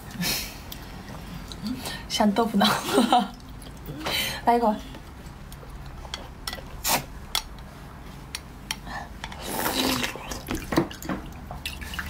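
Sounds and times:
slurping off a spoon: 9.4s - 10.5s.

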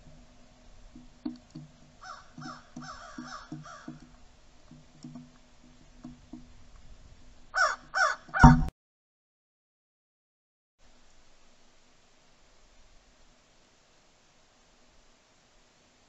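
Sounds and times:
crows cawing: 2.0s - 4.1s, 7.5s - 8.7s.

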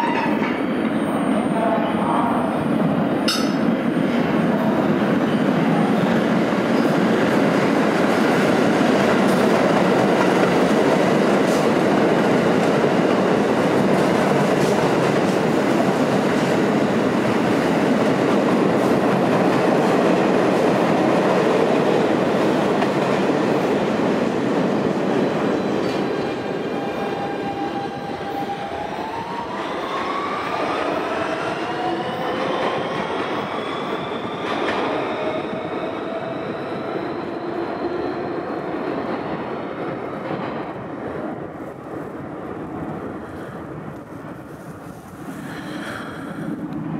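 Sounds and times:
subway train rumbling past: 0.0s - 46.9s.

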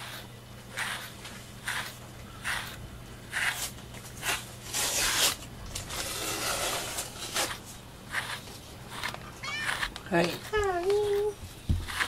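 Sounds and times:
brush scratching through cat fur: 0.0s - 12.0s.

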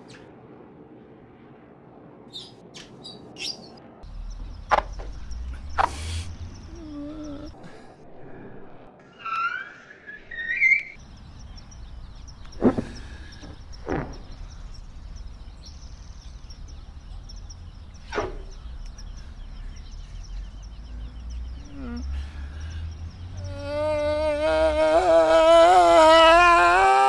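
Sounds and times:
faint insect chirping: 4.0s - 7.7s, 11.0s - 26.6s
man screaming: 23.5s - 27.0s.

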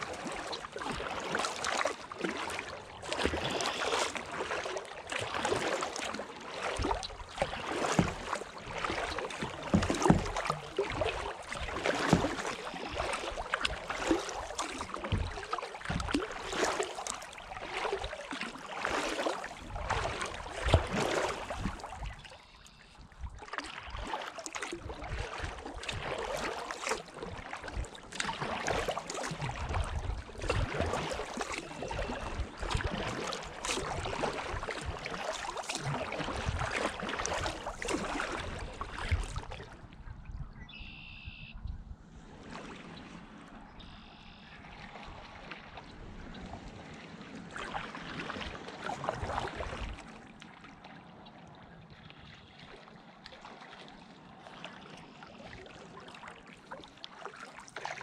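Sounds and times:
kayak paddle splashing: 0.0s - 40.0s, 40.7s - 41.5s, 42.2s - 58.0s.

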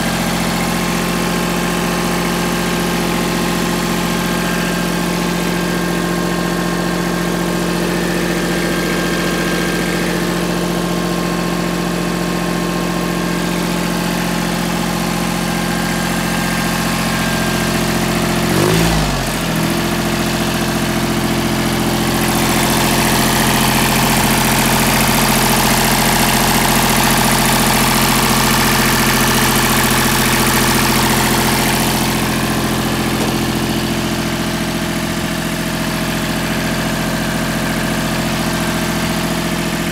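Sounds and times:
tractor diesel engine idling: 0.0s - 39.9s.

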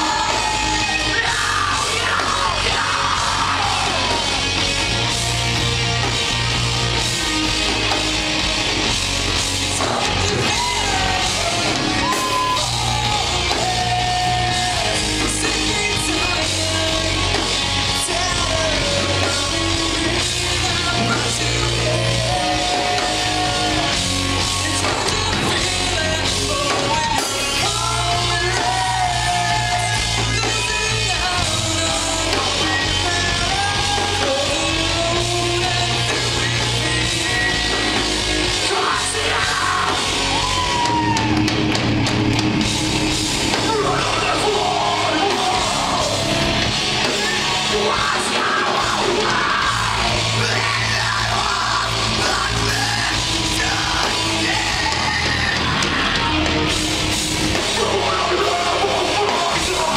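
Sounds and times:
rock band playing: 0.0s - 59.9s
person singing: 9.8s - 41.4s, 43.5s - 56.8s, 57.5s - 59.9s.

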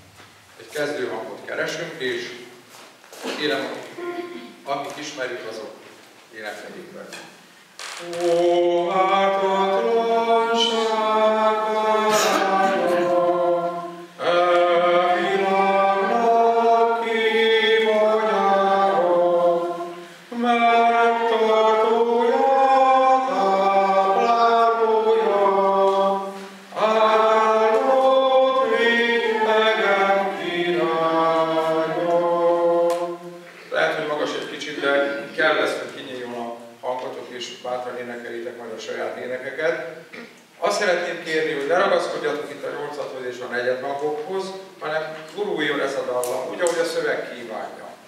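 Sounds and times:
audience singing a hymn: 8.0s - 35.4s.

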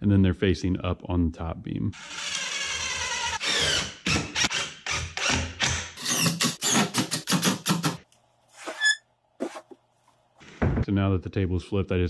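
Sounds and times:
cordless drill driving screws: 2.0s - 7.0s.

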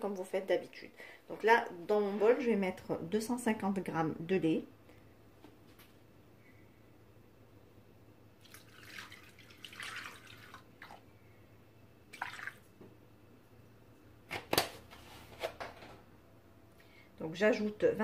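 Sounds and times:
milk pouring and splashing: 8.4s - 11.1s, 12.1s - 12.8s.

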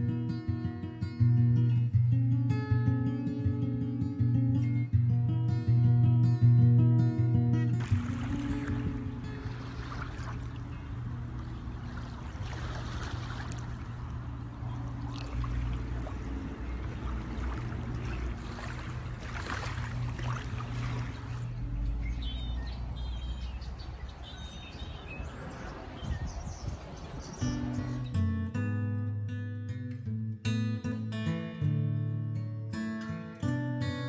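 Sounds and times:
motorboat engine humming: 7.8s - 28.0s
water rushing along hull: 7.8s - 28.0s.

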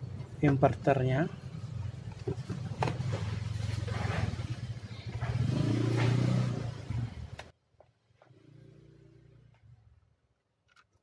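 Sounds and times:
motor vehicle engine running: 0.0s - 7.5s.

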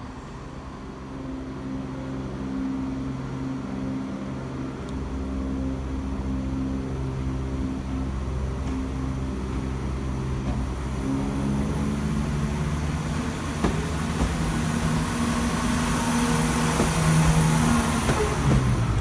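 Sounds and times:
diesel train passing: 0.0s - 19.0s
wheels clicking on track: 4.2s - 19.0s.

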